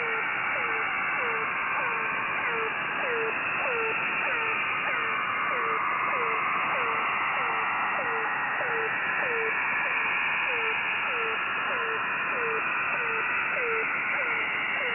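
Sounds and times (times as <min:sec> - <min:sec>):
radio band noise hiss: 0:00.0 - 0:14.9.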